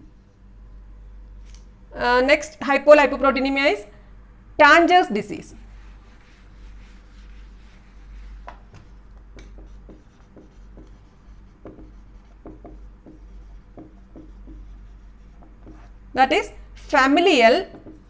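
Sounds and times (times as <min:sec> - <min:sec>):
low steady hum: 0:00.0 - 0:18.0
duster wiping whiteboard: 0:05.6 - 0:15.9
marker pen writing on whiteboard: 0:05.7 - 0:16.0, 0:17.5 - 0:18.0.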